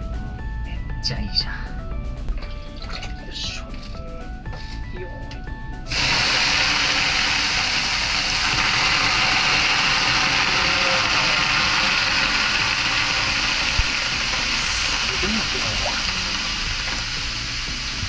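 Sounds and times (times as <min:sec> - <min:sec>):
steam hissing off hot stones: 0:05.9 - 0:18.0.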